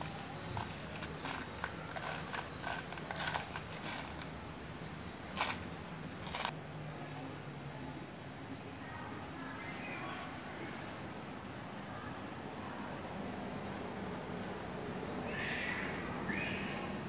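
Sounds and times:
small parts rattling in plastic tub: 0.0s - 4.3s, 5.3s - 6.5s.

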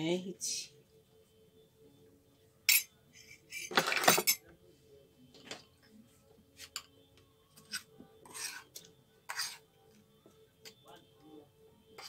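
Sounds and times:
spoons clinking against bowls: 2.7s - 4.4s.

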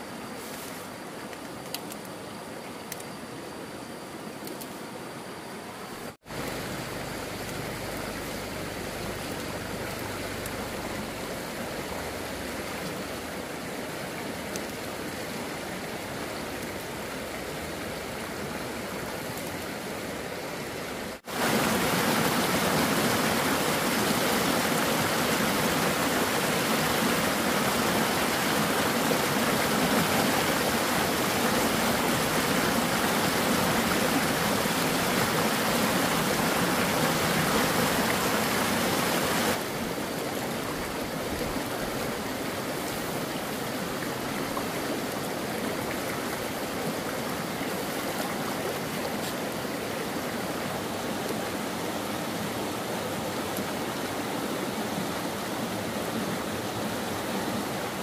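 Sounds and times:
stream flowing over rocks: 0.0s - 58.0s.

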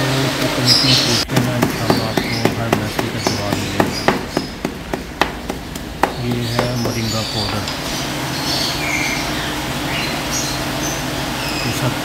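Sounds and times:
sharp ringing knocks: 1.3s - 7.6s.

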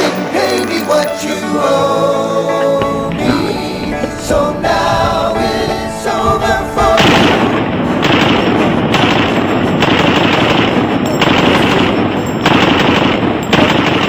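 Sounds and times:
gunshot echo: 2.8s - 14.0s
automatic gunfire bursts: 8.0s - 14.0s.

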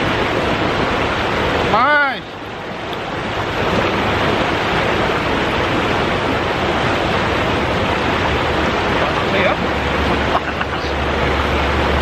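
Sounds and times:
river water rushing over rocks: 0.0s - 12.0s.

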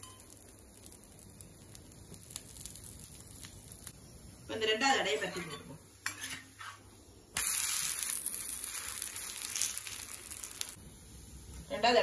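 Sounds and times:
batter sizzling in oil: 0.0s - 12.0s
spatula scraping: 5.2s - 6.9s.

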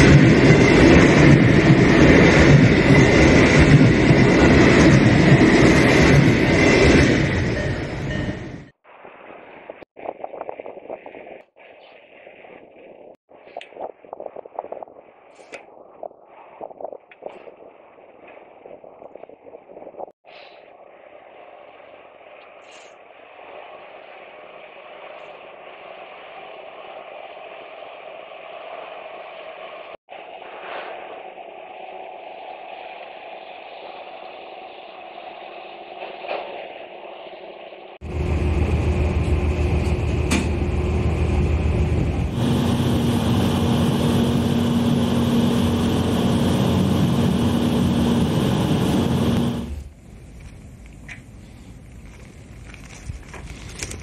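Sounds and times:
ferry engine drone: 31.0s - 54.0s.

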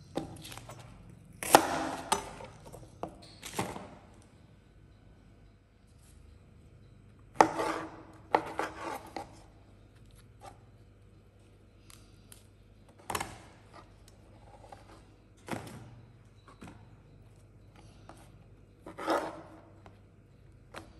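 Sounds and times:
knife cutting on plastic board: 7.4s - 9.4s.

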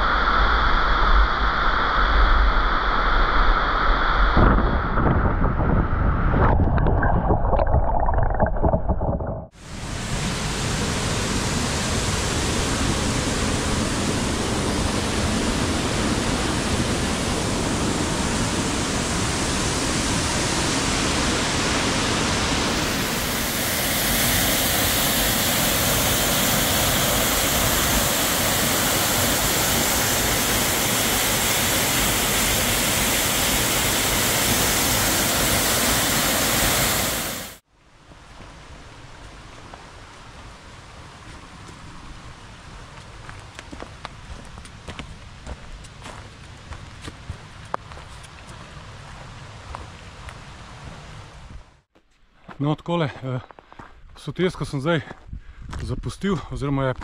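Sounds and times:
low rumble: 0.0s - 9.5s
waterfall rushing: 9.6s - 37.6s.

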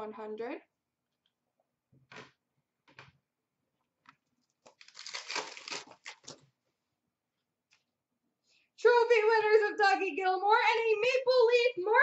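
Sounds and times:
trading cards rustling: 4.4s - 6.4s
wrapper tearing and crinkling: 4.6s - 6.4s.

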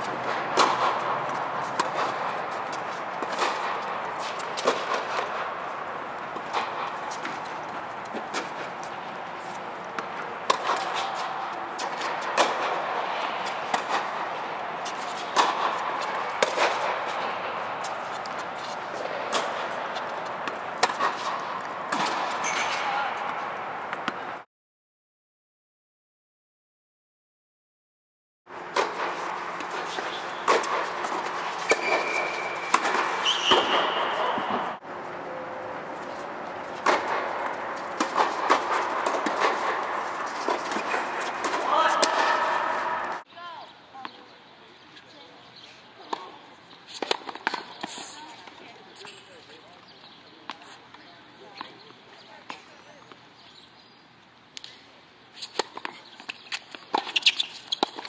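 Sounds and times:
tennis balls struck with rackets: 0.0s - 24.3s, 28.7s - 34.8s, 36.0s - 43.3s, 46.1s - 49.2s, 55.4s - 58.0s.

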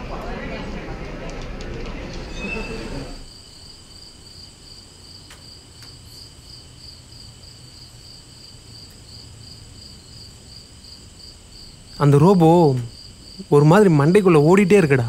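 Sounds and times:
crickets chirping: 2.4s - 15.0s
faint ticks: 5.2s - 6.0s, 8.8s - 9.1s.

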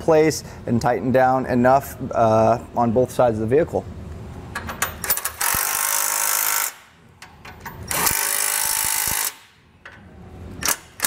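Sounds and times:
cordless impact wrench bursts: 5.2s - 6.9s, 7.9s - 9.6s.

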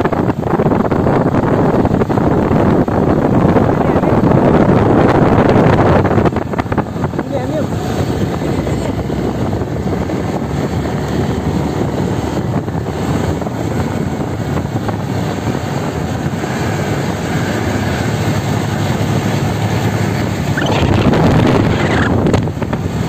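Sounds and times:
motorcycle engine running: 0.0s - 23.0s
wind rushing over microphone: 0.0s - 23.0s.

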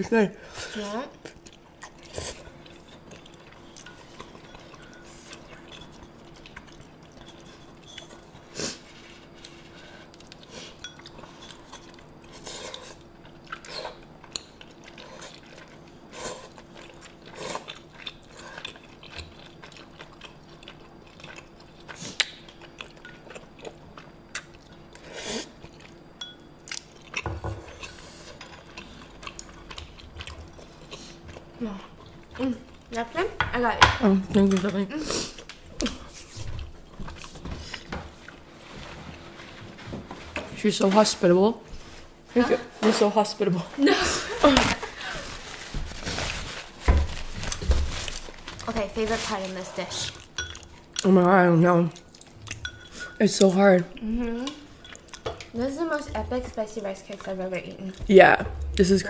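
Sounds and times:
faint steady hum: 0.0s - 59.0s
chewing and slurping: 0.6s - 33.2s, 44.3s - 51.1s, 51.9s - 58.8s.

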